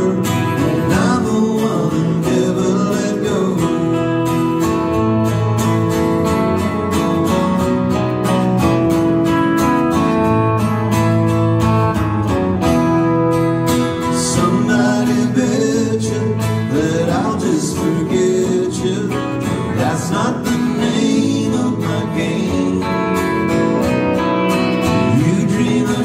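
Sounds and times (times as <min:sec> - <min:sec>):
person singing: 0:00.0 - 0:04.5, 0:14.0 - 0:23.9, 0:24.9 - 0:26.0
guitars playing chords: 0:00.0 - 0:26.0.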